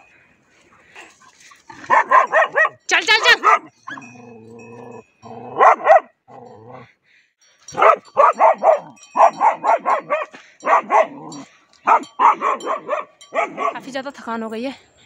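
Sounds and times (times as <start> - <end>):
dog barking angrily: 1.7 - 4.1, 5.5 - 6.2, 7.7 - 13.8.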